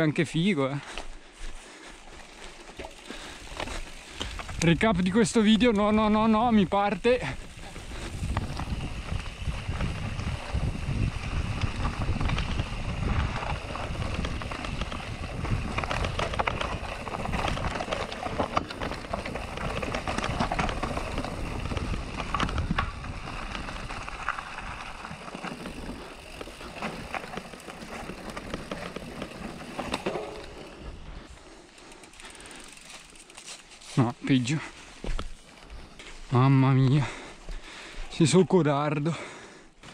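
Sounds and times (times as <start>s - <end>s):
tyres crunching over rocks: 1.8s - 6.4s, 7.2s - 31.0s
bike clattering over bumps: 7.3s - 31.1s.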